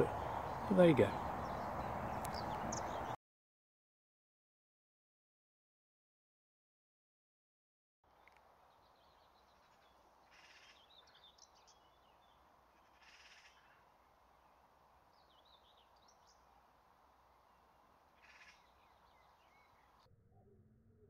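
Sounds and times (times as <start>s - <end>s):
distant songbirds chirping: 0.0s - 3.2s, 8.1s - 20.1s.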